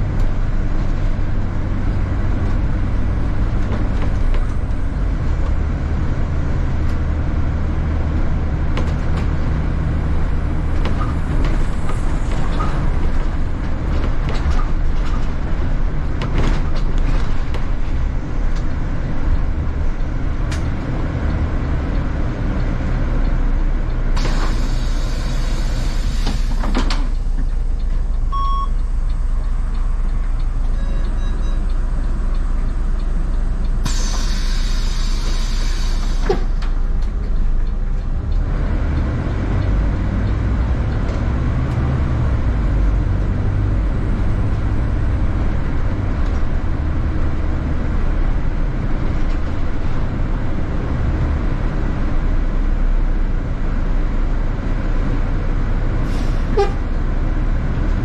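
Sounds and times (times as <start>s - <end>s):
bus engine drone: 0.0s - 58.0s
hiss of air: 24.2s - 26.8s, 33.8s - 36.6s
short beep: 28.3s - 28.8s, 30.7s - 31.7s.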